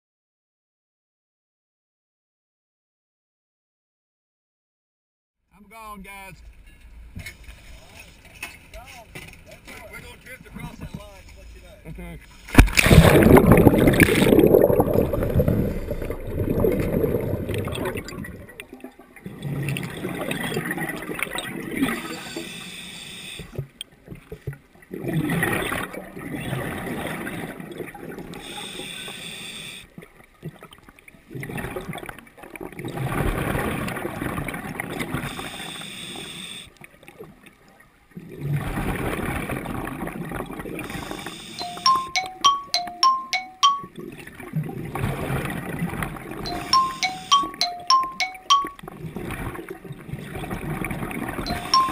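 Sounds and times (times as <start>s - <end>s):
underwater bubbling: 12.6s - 22.5s.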